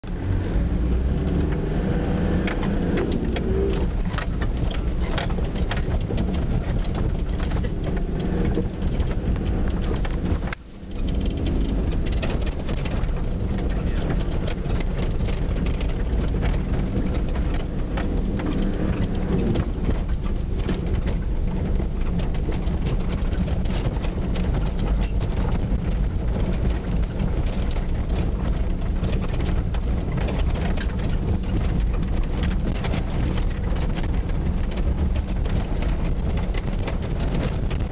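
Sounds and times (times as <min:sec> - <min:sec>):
engine and tyre rumble: 0:00.0 - 0:37.9
knocks and rattles from bumps: 0:00.0 - 0:37.9.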